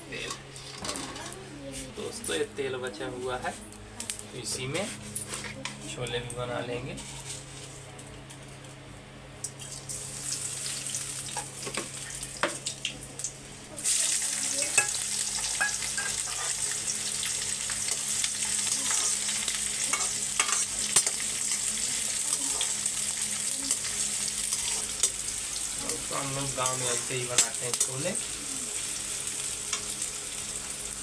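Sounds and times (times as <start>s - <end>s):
hot oil sizzling: 9.4s - 31.0s.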